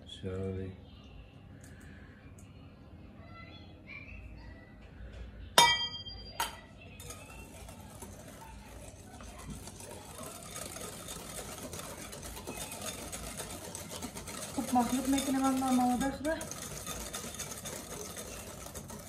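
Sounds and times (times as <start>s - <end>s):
metal clinking on glass bowl: 5.6s - 7.3s
whisk beating batter in bowl: 6.9s - 19.0s.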